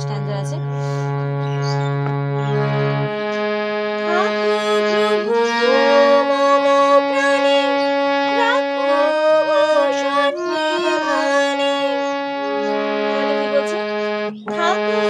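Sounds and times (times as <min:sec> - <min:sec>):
harmonium slow melody: 0:00.0 - 0:15.0.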